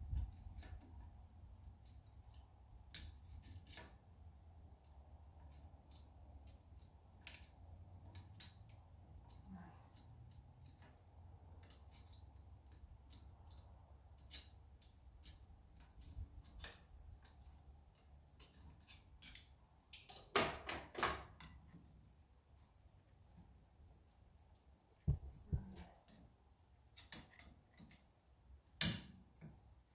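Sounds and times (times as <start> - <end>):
metallic clicks of hand tools: 1.7 - 4.0, 4.8 - 20.4, 26.8 - 29.6
low steady hum: 21.4 - 28.7.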